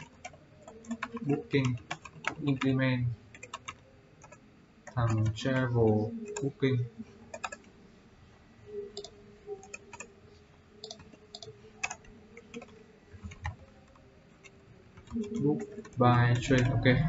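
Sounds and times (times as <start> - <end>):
computer keyboard key clicks: 3.4 - 5.3, 7.3 - 7.6, 10.8 - 16.7.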